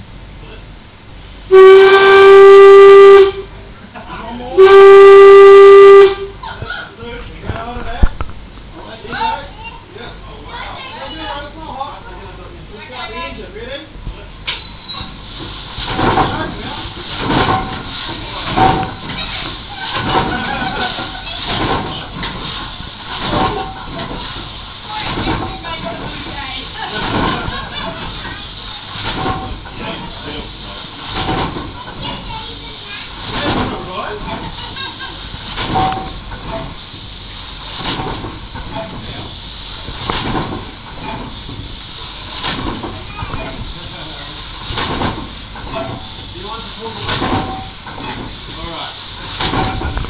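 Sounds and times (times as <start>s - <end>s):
hiss of escaping steam: 1.1s - 3.5s, 14.2s - 50.0s
steam engine puffing: 1.1s - 3.6s, 4.6s - 6.4s, 14.3s - 50.0s.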